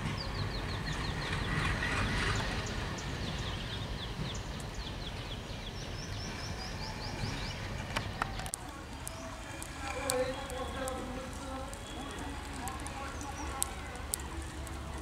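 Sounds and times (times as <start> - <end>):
bird chirping: 2.3 - 14.1.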